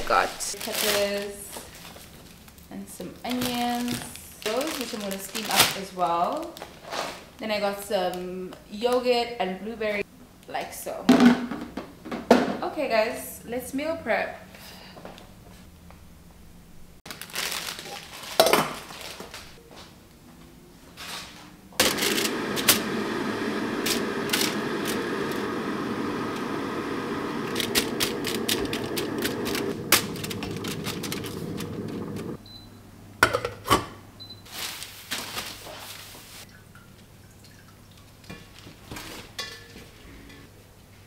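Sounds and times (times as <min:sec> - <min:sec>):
dishes and pots clattering: 0:38.3 - 0:40.5.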